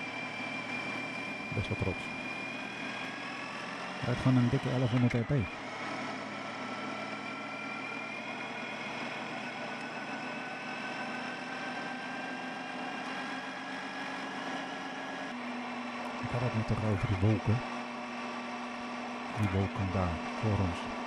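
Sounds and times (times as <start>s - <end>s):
motorcycle engine cruising: 0.0s - 15.4s.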